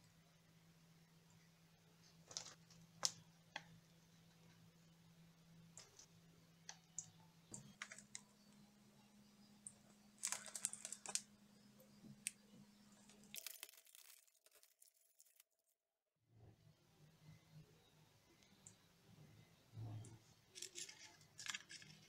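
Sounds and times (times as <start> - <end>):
faint low hum: 0.0 - 13.4, 16.4 - 22.0
plastic wrappers crinkling: 10.2 - 11.3, 13.0 - 15.6, 20.6 - 22.0.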